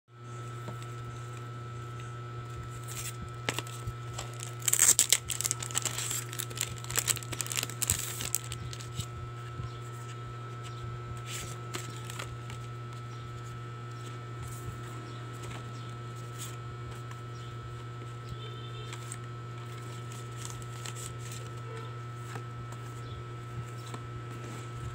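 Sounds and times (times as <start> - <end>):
steady low hum: 0.1 - 24.9
plastic wrap tearing and crinkling: 2.8 - 9.1, 11.3 - 12.7, 19.0 - 21.6.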